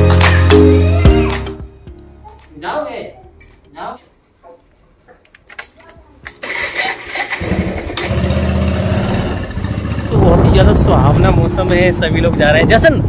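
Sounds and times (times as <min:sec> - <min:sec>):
motorcycle engine cranking and running: 0:06.3 - 0:10.4.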